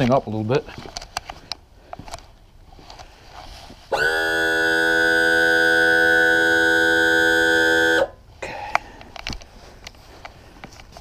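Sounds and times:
electric motor whine: 0:03.9 - 0:08.1.

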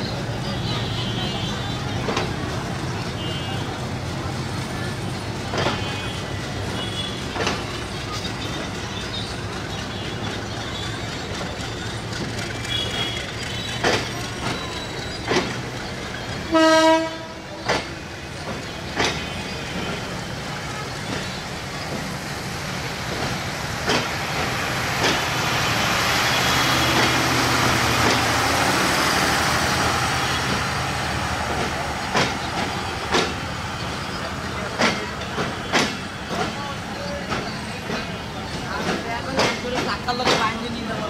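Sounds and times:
passing train rumble and hiss: 0:00.0 - 0:41.0
train horn blast: 0:16.5 - 0:17.4
train wheels knocking over rail joints: 0:17.5 - 0:20.1, 0:21.0 - 0:25.5, 0:26.4 - 0:33.9, 0:34.6 - 0:40.9.

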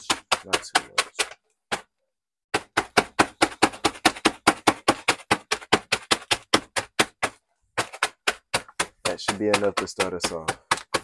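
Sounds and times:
rapid knocks on snack bag: 0:02.6 - 0:11.0.

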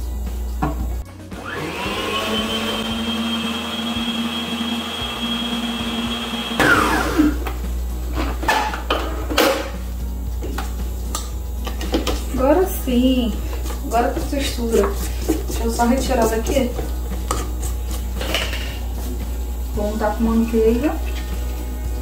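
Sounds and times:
stand mixer motor whining: 0:01.3 - 0:07.6.

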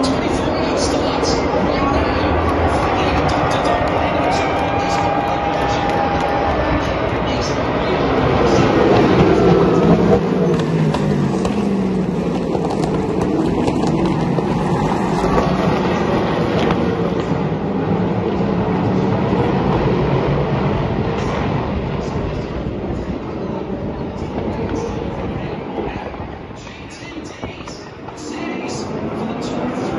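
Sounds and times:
racing cars passing by: 0:00.0 - 0:29.9.

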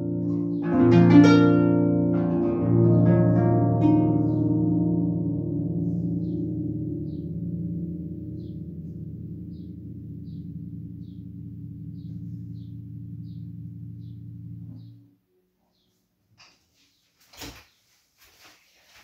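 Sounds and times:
harp plucked chords: 0:00.0 - 0:15.2.

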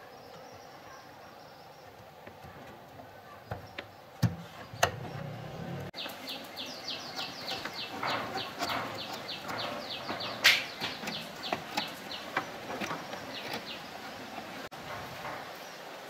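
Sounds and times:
light clicks and knocks: 0:07.2 - 0:15.5.

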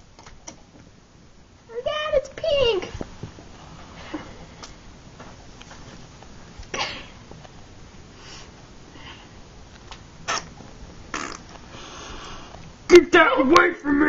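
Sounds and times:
person sniffing: 0:11.2 - 0:12.6.

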